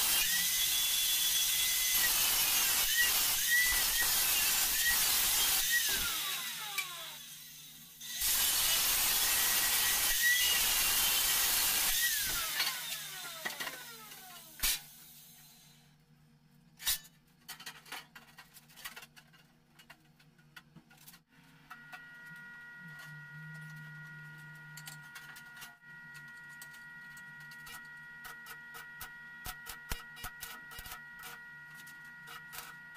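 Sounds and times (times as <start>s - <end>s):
angle grinder cutting metal: 0.0s - 14.8s.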